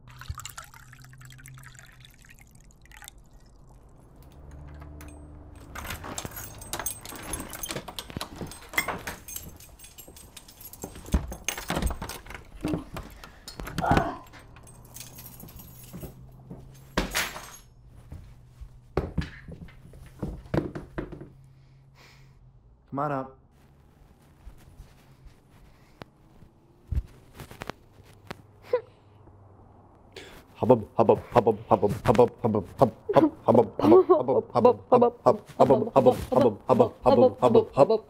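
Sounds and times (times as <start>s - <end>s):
wine pouring into glass jar: 0.0s - 3.9s
keys and door clicks and knocks: 4.1s - 17.8s.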